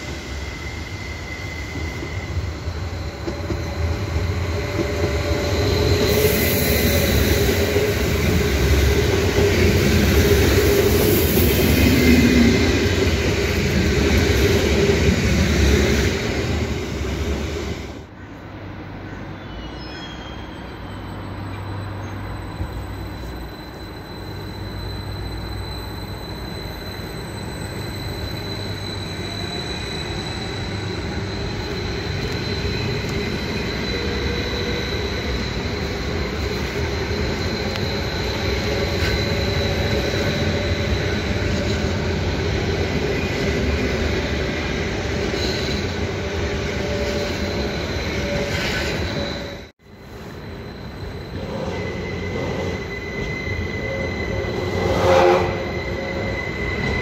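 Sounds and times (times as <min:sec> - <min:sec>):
train running rumble: 0:00.0 - 0:18.1
train wheel squeal: 0:00.0 - 0:57.0.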